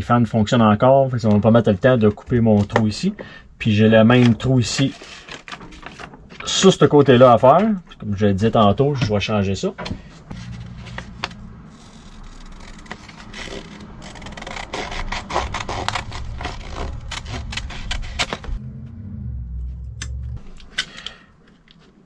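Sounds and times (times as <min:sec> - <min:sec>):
paper rustling: 0:04.1 - 0:06.6, 0:10.3 - 0:18.6
scissors snipping paper: 0:10.8 - 0:18.6.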